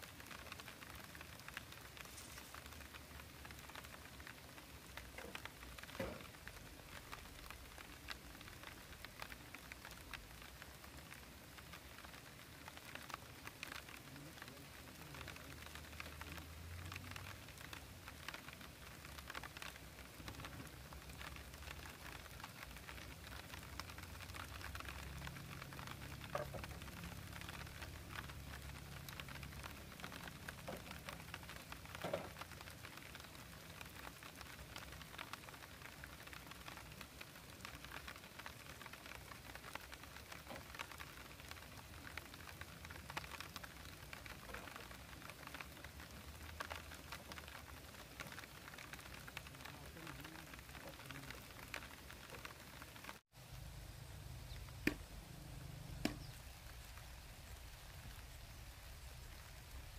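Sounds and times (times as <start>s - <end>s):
faint light crackling: 0.0s - 59.9s
bamboo poles knocking: 54.8s - 55.1s, 56.0s - 56.3s.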